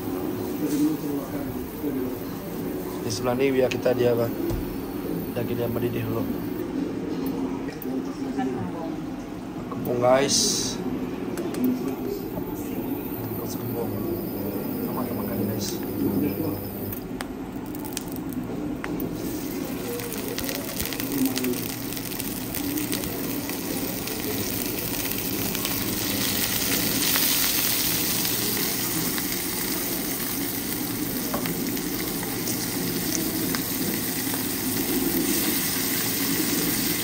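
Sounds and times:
fish sizzling in oil: 19.2 - 37.0.

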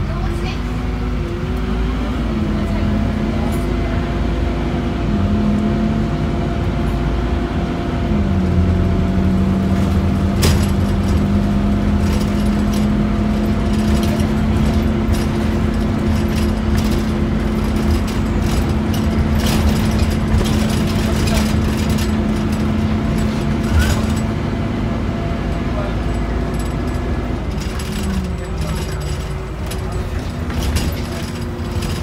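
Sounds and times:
bus diesel engine and road noise: 0.0 - 32.0
interior fittings rattling: 9.8 - 24.4, 25.5 - 32.0.

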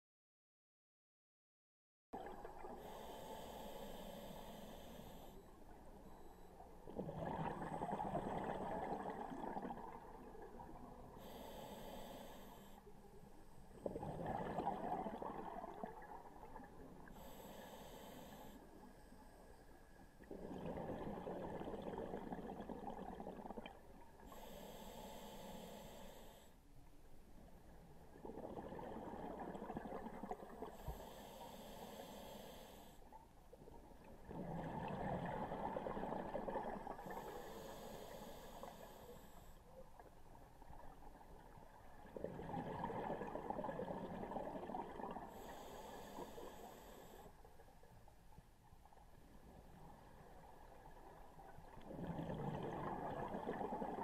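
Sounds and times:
regulator hissing inhale: 2.8 - 5.6, 11.2 - 12.9, 17.1 - 19.0, 24.3 - 26.6, 30.7 - 33.1, 37.0 - 39.7, 45.3 - 47.4
bubbling exhale: 51.9 - 54.0.

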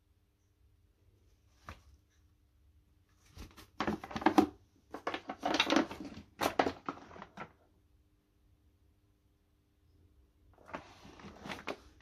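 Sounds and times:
vacuum filter and parts rustling: 3.2 - 7.6, 10.6 - 12.0.

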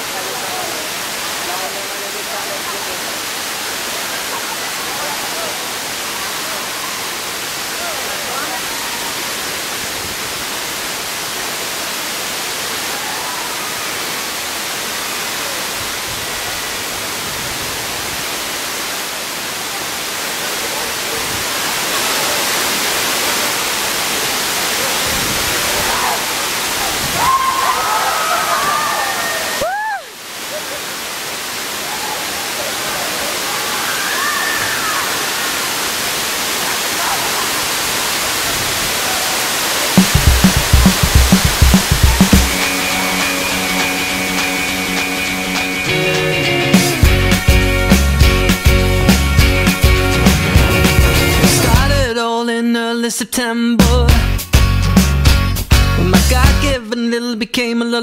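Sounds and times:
waterfall rushing: 0.0 - 52.1.

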